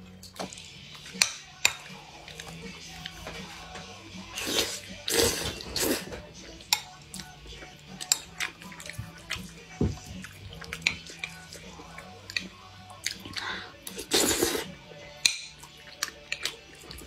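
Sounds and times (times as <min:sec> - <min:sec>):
chewing with mouth clicks: 0:00.2 - 0:03.4, 0:04.3 - 0:17.0
wet slurps: 0:04.3 - 0:06.2, 0:12.3 - 0:14.7.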